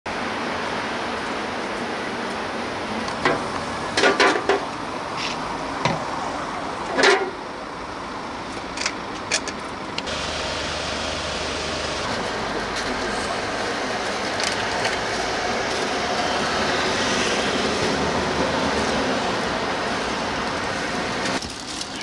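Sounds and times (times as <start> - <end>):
passing traffic: 0.1 - 22.0
knocks and clatters: 4.0 - 4.7.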